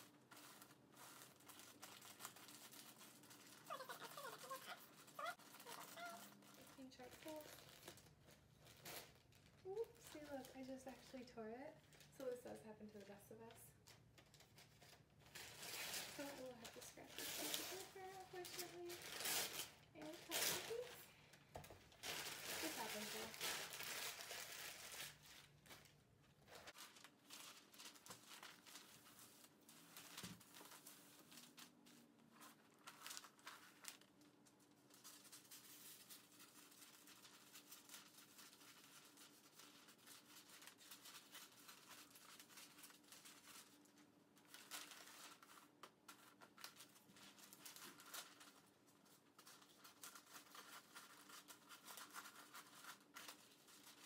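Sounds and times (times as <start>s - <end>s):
wrapping paper crinkling: 0.0s - 54.0s
scissors cutting paper: 49.4s - 54.0s.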